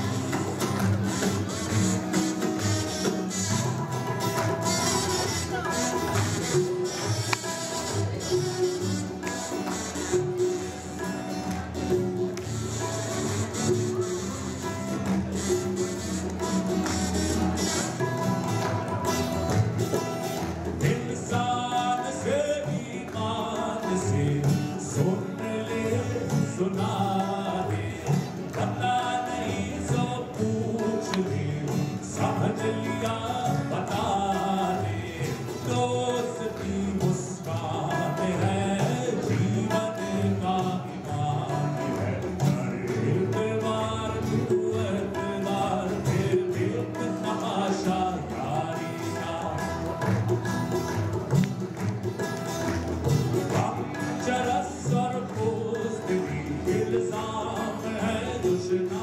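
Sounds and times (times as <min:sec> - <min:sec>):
strummed acoustic guitar: 0:00.0 - 0:59.0
tabla: 0:00.0 - 0:59.0
man singing: 0:20.6 - 0:50.3, 0:53.4 - 0:59.0.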